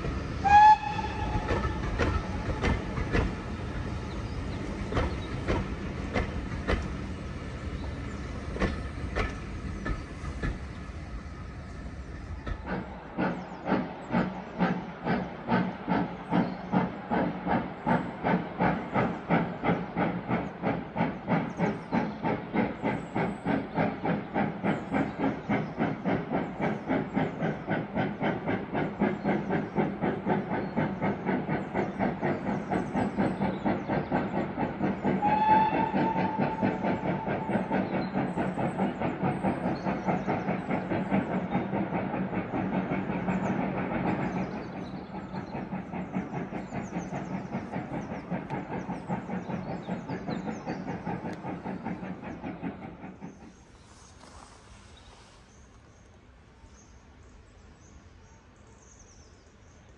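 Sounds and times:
steam locomotive exhaust chuffs: 0.0 - 56.1
locomotive whistle blast: 0.4 - 1.4, 35.2 - 36.6.

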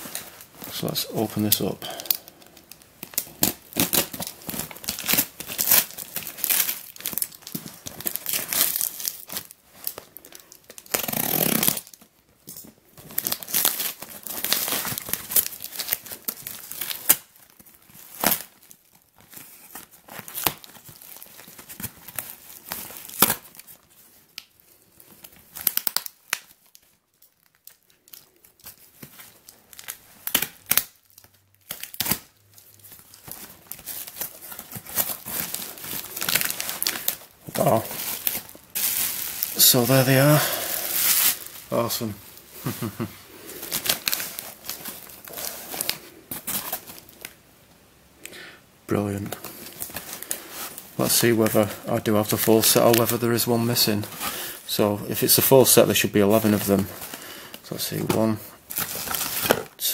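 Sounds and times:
cardboard box tape ripping: 2.7 - 9.5, 10.7 - 12.0, 29.7 - 31.0, 31.6 - 32.4, 58.7 - 59.8.

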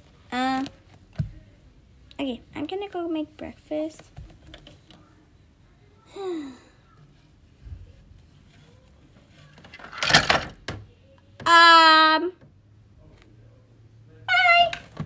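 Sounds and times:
handling plastic toys: 8.1 - 10.8
loud plastic clatter: 9.6 - 10.8.

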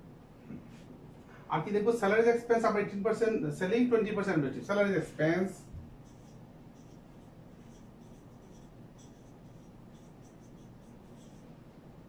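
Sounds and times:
marker pen scratching on whiteboard: 5.7 - 11.6.

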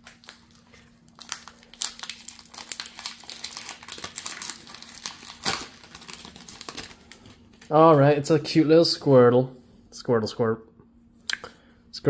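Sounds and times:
foil pack crinkling: 0.0 - 8.0.

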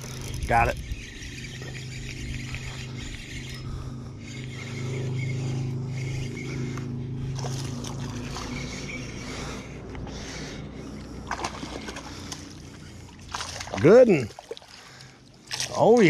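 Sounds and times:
fishing reel gears whirring: 0.0 - 16.0
fish splashing at the surface: 11.2 - 16.0.

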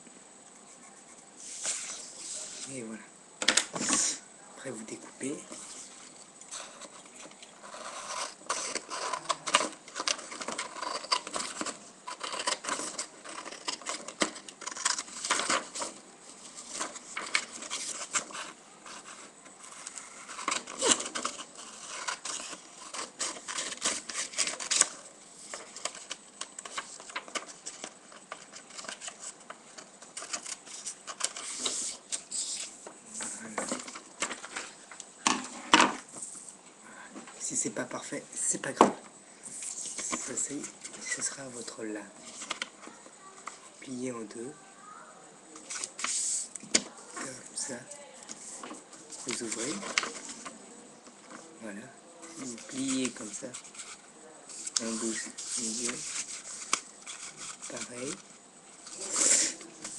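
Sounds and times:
paper rustling: 5.2 - 34.8, 45.6 - 50.6, 52.2 - 59.9.

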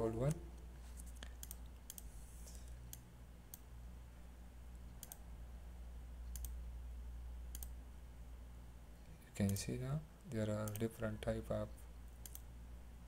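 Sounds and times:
low steady hum: 0.0 - 13.0
computer mouse clicks: 1.0 - 3.7, 4.9 - 5.2, 6.2 - 6.6, 7.5 - 7.8, 10.6 - 10.9, 12.1 - 12.5.

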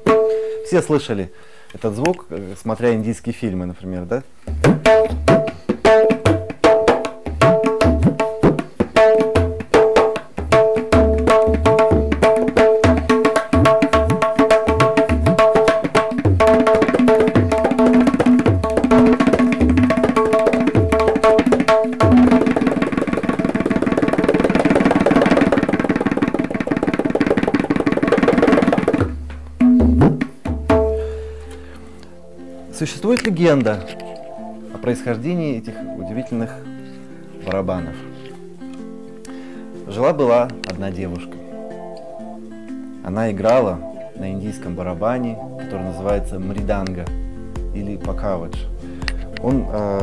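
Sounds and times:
tabla treble drum strokes: 0.0 - 0.6, 4.5 - 31.3, 46.1 - 50.0.

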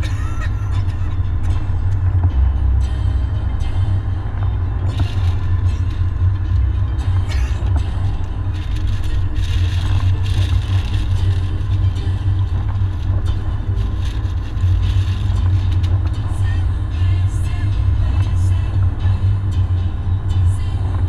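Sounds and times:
road and engine rumble: 0.0 - 21.0
rain and tyre spray hiss: 4.9 - 19.2.

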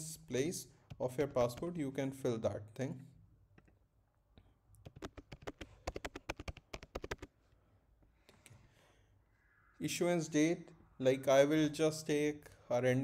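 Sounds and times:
keyboard typing: 4.8 - 7.3.

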